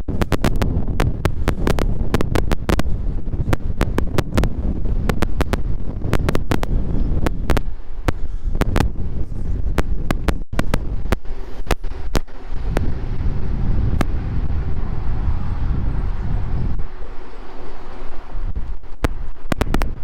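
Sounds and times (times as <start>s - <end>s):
sharp irregular clicks: 0.0s - 9.0s, 18.7s - 20.0s
sharp cracks: 0.0s - 14.9s, 17.8s - 20.0s
wind buffeting microphone: 0.0s - 20.0s.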